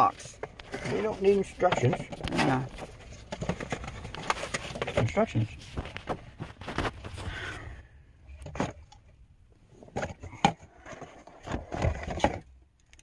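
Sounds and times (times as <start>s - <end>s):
cardboard and plastic rustling: 0.0s - 12.6s.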